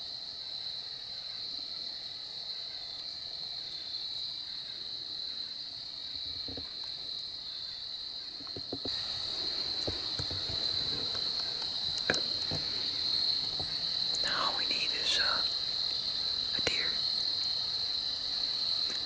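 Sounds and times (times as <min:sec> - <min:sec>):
insect chorus buzzing: 0:00.0 - 0:19.0
faint knocks: 0:09.8 - 0:13.8.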